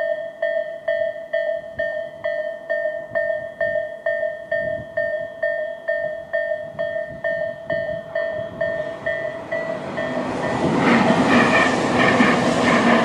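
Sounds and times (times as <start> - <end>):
level crossing warning bell: 0.0 - 13.0
train rumble: 6.0 - 13.0
train wheels clattering: 8.2 - 13.0.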